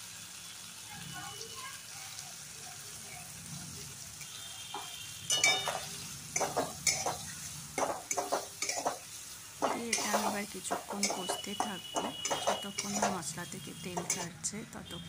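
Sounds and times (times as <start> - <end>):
paste sizzling in oil: 0.0 - 15.0
spatula scraping a pan: 4.2 - 14.5.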